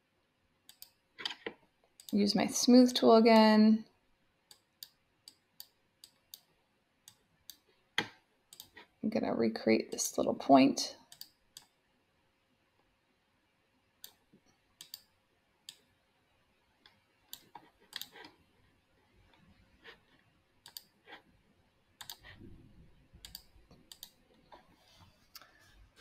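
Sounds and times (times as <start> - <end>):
computer mouse clicks: 0.7 - 2.2, 4.5 - 7.7, 8.5 - 8.9, 11.1 - 11.8, 14.0 - 15.9, 16.9 - 18.4, 20.6 - 21.2, 22.0 - 22.5, 23.2 - 24.3.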